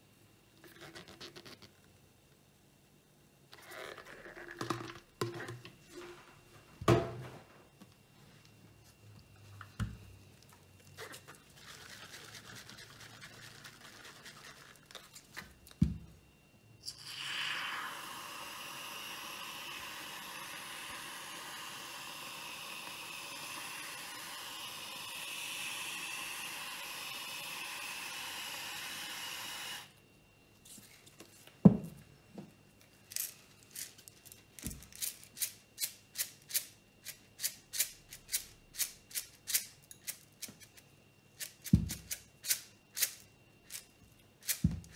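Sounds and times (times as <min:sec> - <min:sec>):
objects set down on table: 0:06.8 - 0:07.5, 0:31.6 - 0:32.5
sprinkles shaker rattling: 0:11.5 - 0:15.2.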